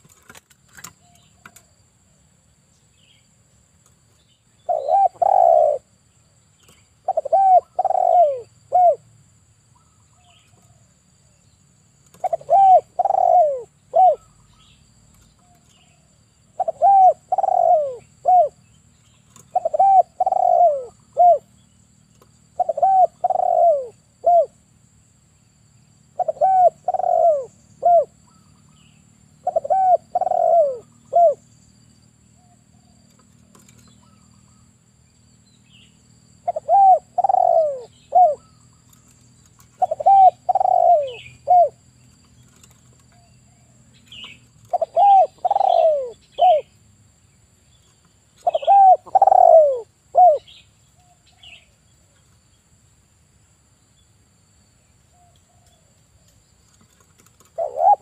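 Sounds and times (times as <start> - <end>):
dove cooing: 4.6 - 5.9, 7.0 - 9.1, 12.1 - 14.6, 15.4 - 18.7, 19.3 - 21.5, 22.5 - 24.6, 26.1 - 28.5, 29.4 - 31.5, 36.4 - 46.7, 48.4 - 50.6, 56.9 - 58.0.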